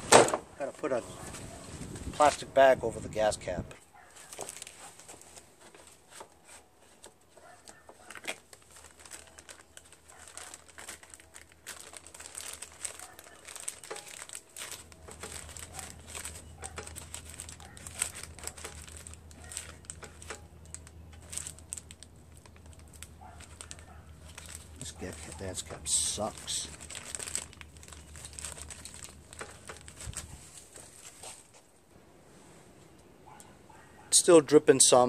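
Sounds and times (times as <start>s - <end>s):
plastic bag crinkling: 4.1s - 31.6s.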